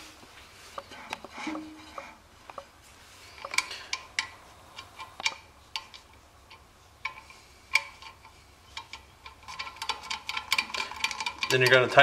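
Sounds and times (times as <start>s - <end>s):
light metallic clicks and taps: 3.4s - 11.9s.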